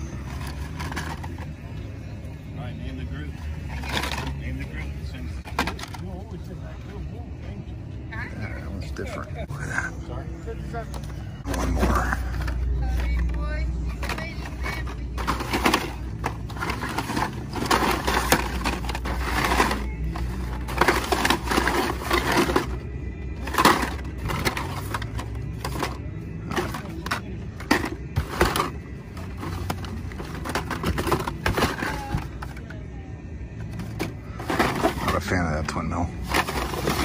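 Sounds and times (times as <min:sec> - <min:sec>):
plastic blister packs rustling: 0:14.0 - 0:22.8, 0:36.2 - 0:37.0.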